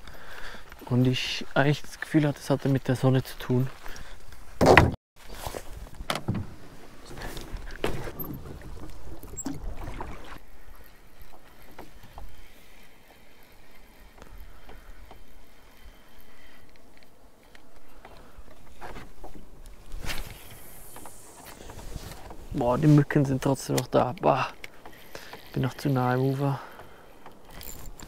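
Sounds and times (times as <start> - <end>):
oars dipping and splashing: 5.5 - 28.0
even water sound: 5.7 - 28.0.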